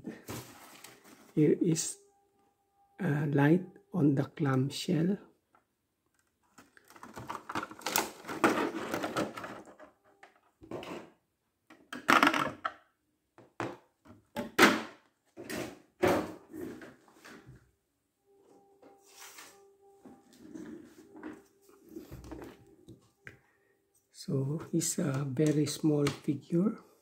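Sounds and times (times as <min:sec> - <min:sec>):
plastic packaging crackling: 0:06.6 - 0:09.4.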